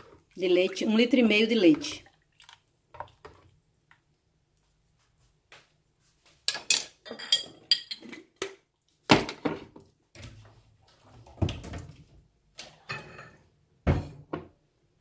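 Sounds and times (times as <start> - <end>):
kitchenware knocks and clinks: 6.5 - 8.2, 12.9 - 14.6.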